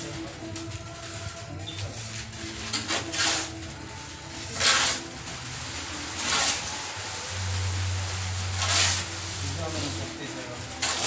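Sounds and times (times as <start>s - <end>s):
trowel scraping mortar: 2.6s - 3.6s, 4.5s - 5.1s, 6.2s - 6.7s, 8.5s - 9.1s, 10.8s - 11.0s.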